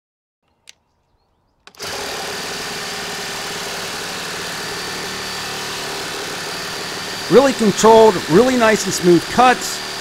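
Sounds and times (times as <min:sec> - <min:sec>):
small click: 0:00.4 - 0:00.9
reciprocating saw cutting wood: 0:01.7 - 0:10.0.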